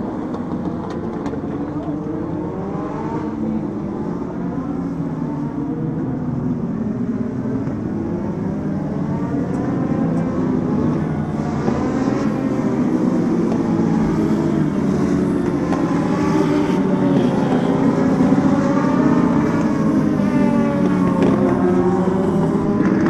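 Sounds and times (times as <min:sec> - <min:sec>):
race car engine accelerating: 0:07.2 - 0:23.0.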